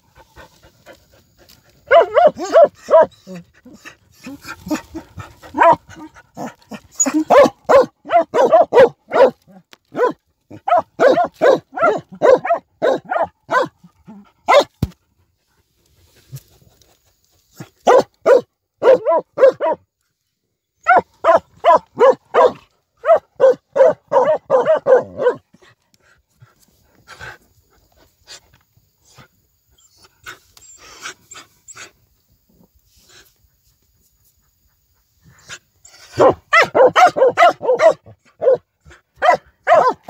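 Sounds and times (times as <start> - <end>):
dogs barking rapidly: 1.9 - 3.2, 4.6 - 13.8, 14.4 - 14.7, 17.8 - 19.8, 20.9 - 25.4, 36.0 - 40.0.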